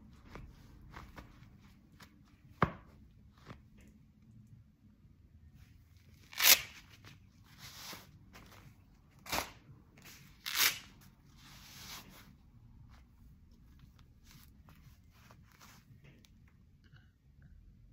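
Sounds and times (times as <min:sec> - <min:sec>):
glove rustling: 0:00.0 - 0:03.7, 0:06.0 - 0:16.2
hook-and-loop strap ripping: 0:06.2 - 0:07.2, 0:10.4 - 0:11.1.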